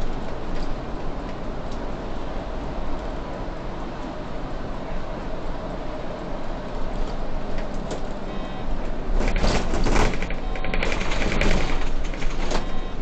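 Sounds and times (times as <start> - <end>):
bus engine and road drone: 0.0 - 13.0
rapid rattling clatter: 9.1 - 12.8.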